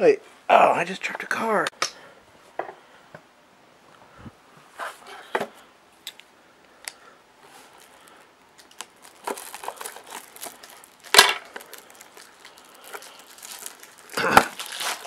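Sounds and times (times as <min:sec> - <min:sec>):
plastic wrap crinkling: 0:07.4 - 0:15.0.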